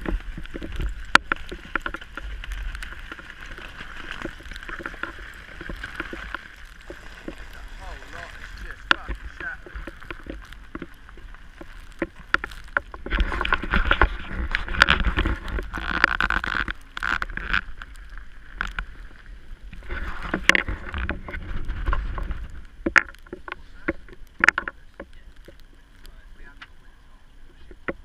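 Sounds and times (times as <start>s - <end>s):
sharp ticks and knocks: 0.0s - 18.9s, 19.7s - 26.7s
tyres rolling over wet gravel: 0.0s - 28.0s.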